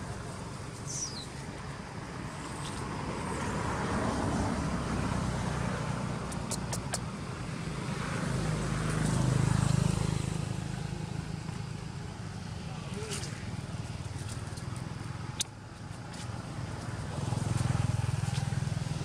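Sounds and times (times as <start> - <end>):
quick sharp clicks: 6.3 - 7.1.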